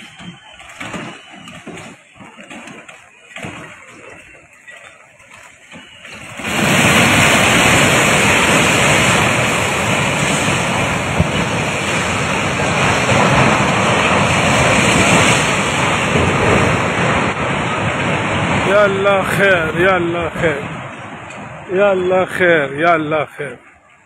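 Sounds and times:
roar of falling debris: 5.8 - 18.8.

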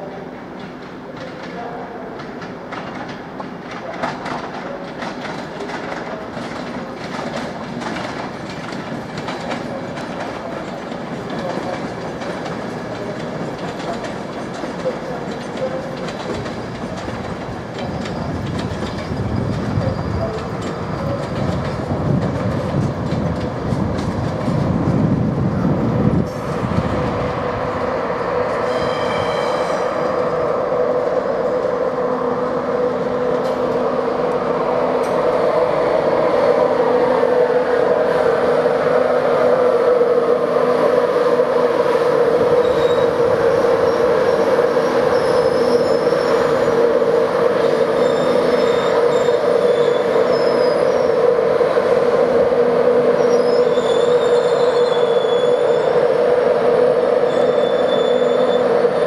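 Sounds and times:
electric locomotive humming: 0.0 - 59.0
wheel or brake squeals: 28.6 - 29.9, 42.6 - 43.1, 45.1 - 46.5, 48.0 - 51.1, 53.2 - 55.9, 57.3 - 58.7.

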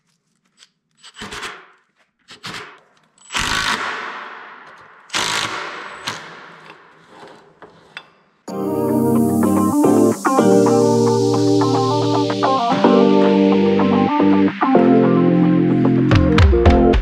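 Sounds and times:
impact driver hammering screws: 1.0 - 7.2.

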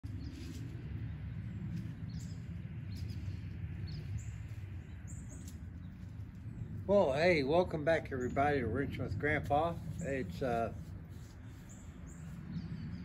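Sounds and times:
low outdoor rumble: 0.0 - 13.0.

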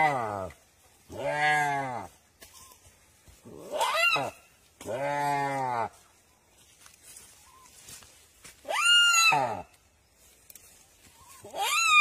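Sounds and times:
deer distress bleat: 0.0 - 2.2, 3.4 - 6.0, 8.6 - 9.7, 11.4 - 12.0.

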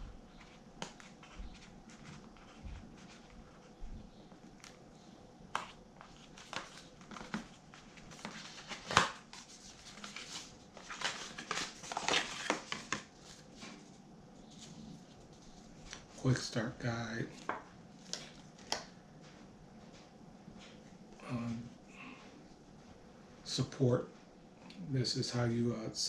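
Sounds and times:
paper rustling and crinkling: 5.5 - 16.3.

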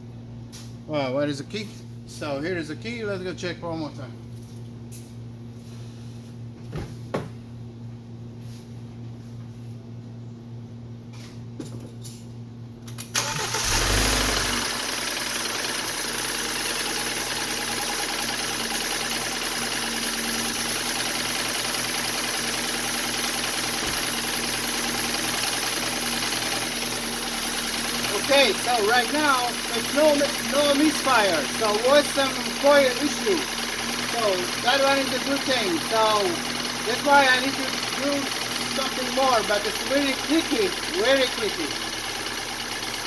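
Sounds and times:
car engine starting: 13.1 - 43.0
car engine idling: 13.2 - 43.0.

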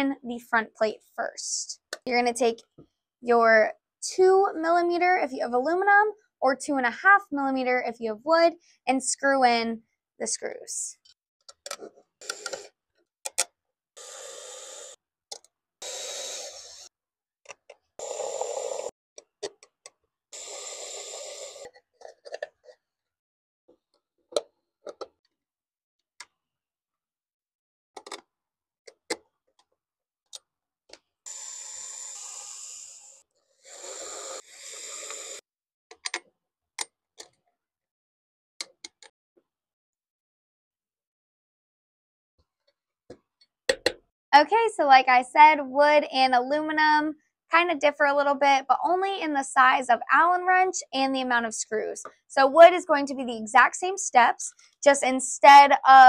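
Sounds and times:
electric screwdriver whirring: 12.2 - 12.7, 15.8 - 16.9.

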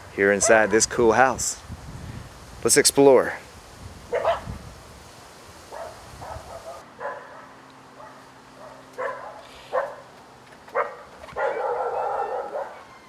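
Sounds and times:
dog barking: 0.4 - 0.9, 4.1 - 4.5, 5.7 - 10.1, 10.7 - 12.9.

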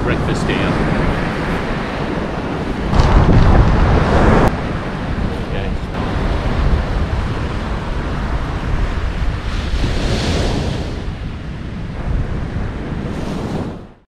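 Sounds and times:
ocean surf breaking on beach: 0.0 - 13.8
wind rumbling on microphone: 0.0 - 14.0.

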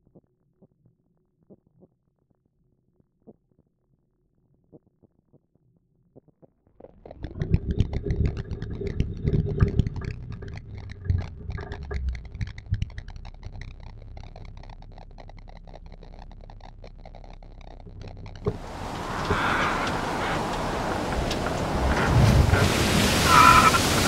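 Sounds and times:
crackling and scraping: 6.9 - 24.0
rumbling vehicle engine: 7.2 - 24.0.

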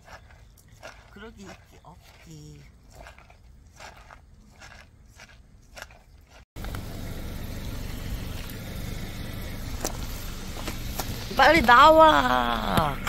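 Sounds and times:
car engine idling: 6.6 - 13.0.

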